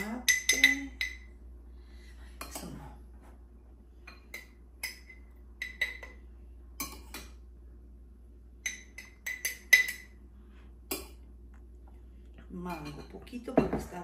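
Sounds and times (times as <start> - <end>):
metal spoon clinking on ceramic and glass: 0.0 - 1.3, 8.6 - 10.2.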